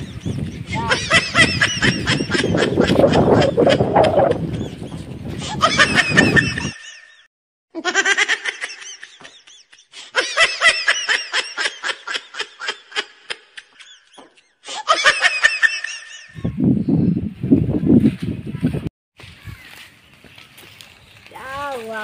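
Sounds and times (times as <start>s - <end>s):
high-pitched laughter: 0.7s - 4.8s, 5.4s - 7.2s, 7.8s - 16.6s.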